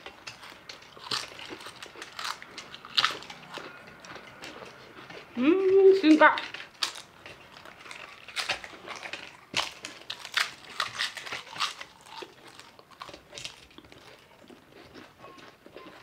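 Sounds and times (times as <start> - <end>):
crisp chips being chewed: 0.0 - 16.0.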